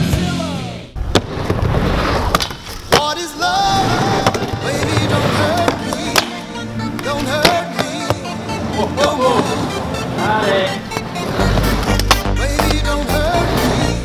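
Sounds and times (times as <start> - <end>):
rock music: 0.0 - 1.0, 3.1 - 14.0
skateboard wheels rolling on wood: 1.0 - 14.0.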